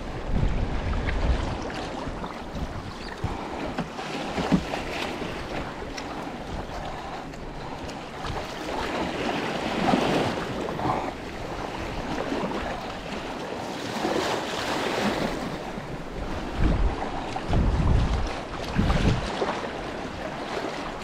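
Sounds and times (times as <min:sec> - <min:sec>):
wind buffeting microphone: 0:00.0 - 0:13.5, 0:14.9 - 0:21.0
choppy water splashing: 0:00.0 - 0:21.0.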